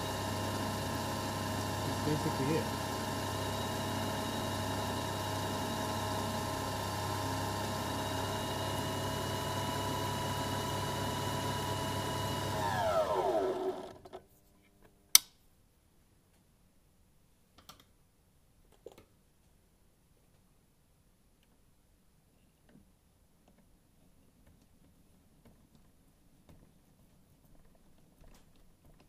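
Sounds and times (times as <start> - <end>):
spindle motor whine: 0.0 - 14.0.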